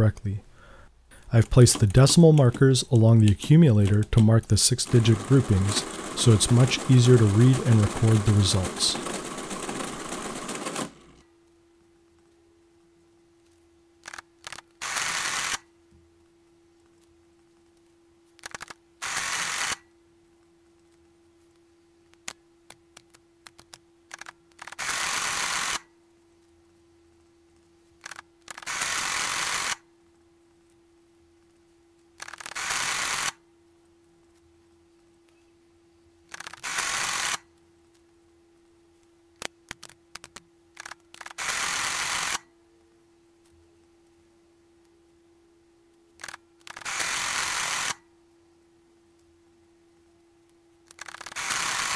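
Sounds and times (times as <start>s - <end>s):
calculator mechanical chatter: 1.3s - 11.2s, 50.9s - 51.9s.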